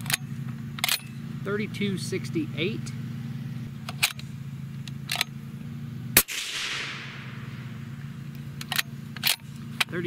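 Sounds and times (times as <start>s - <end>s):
steady low hum: 0.0s - 10.0s
suppressed rifle shot: 6.2s - 8.1s.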